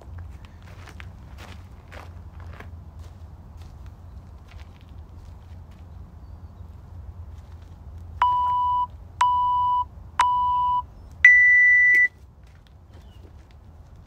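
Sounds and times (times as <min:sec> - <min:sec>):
longer higher timer beep: 0:08.2 - 0:12.1
timer short beeps: 0:08.2 - 0:12.2.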